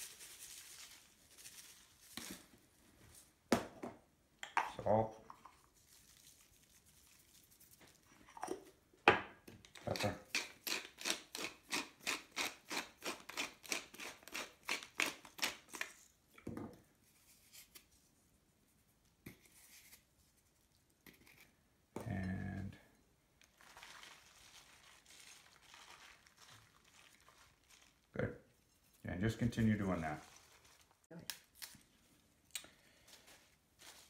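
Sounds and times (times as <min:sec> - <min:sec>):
pepper mill grinding: 0:09.7 - 0:16.0.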